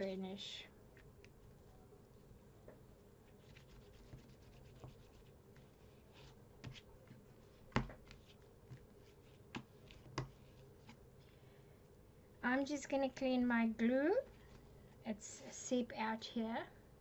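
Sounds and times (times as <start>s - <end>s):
scratchy paper rubbing: 3.3s - 11.0s.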